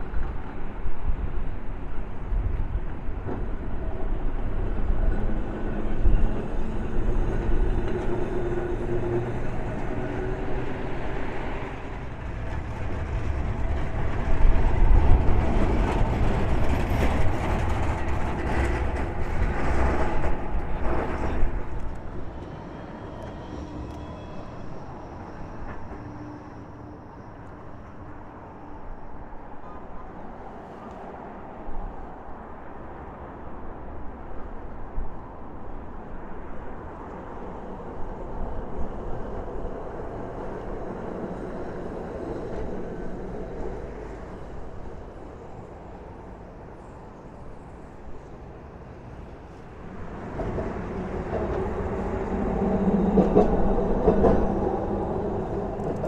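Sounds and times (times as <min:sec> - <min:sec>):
wind buffeting microphone: 0:00.0 - 0:26.2
tram running past: 0:00.0 - 0:56.0.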